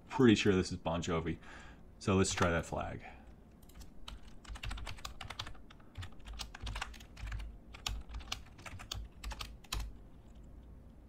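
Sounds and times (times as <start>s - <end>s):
typing on computer keyboard: 3.6s - 10.0s.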